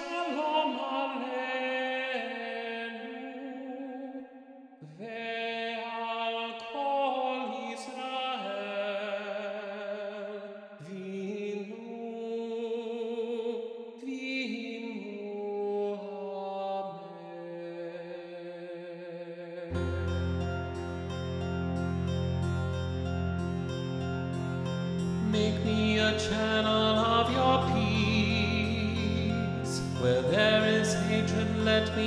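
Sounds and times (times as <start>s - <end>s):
voices singing harmony: 25.2s - 32.0s.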